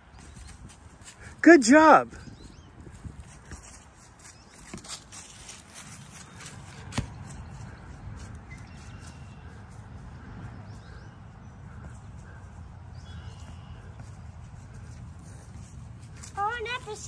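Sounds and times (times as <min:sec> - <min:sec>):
wind buffeting microphone: 0:00.0 - 0:01.4, 0:02.1 - 0:17.0
foot kicking ball: 0:03.0 - 0:07.6.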